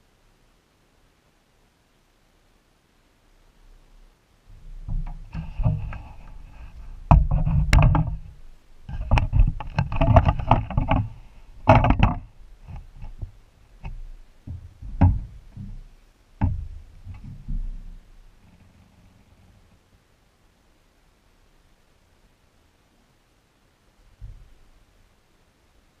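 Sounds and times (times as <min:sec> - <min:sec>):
handling rustle on microphone: 0:04.6 - 0:14.2
knocks and thumps on boat: 0:04.6 - 0:18.0.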